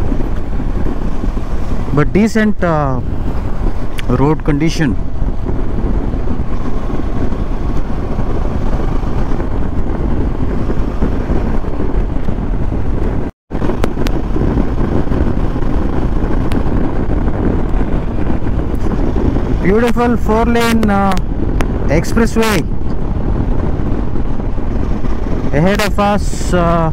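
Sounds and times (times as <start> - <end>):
wind rushing over microphone: 0.0 - 26.9
motorcycle engine: 5.0 - 20.5.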